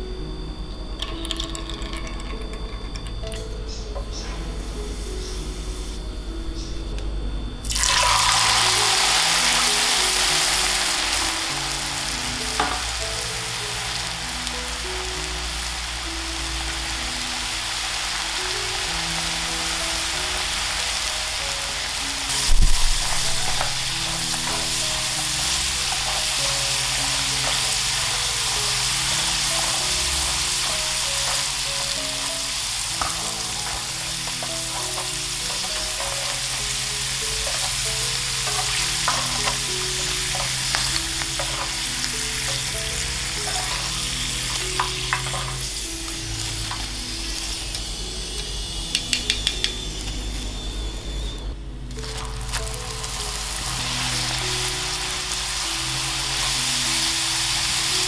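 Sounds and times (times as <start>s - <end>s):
oil sizzling deep-frying: 7.6s - 58.0s
utensils clicking against pan: 22.3s - 47.0s, 47.6s - 50.2s.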